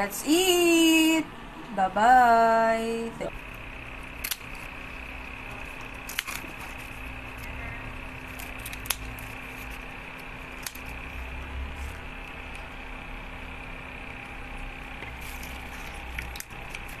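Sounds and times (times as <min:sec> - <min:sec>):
steady hum: 0:00.0 - 0:17.0
scissors snipping: 0:04.2 - 0:04.6, 0:06.0 - 0:06.8, 0:08.3 - 0:09.8, 0:10.5 - 0:11.0.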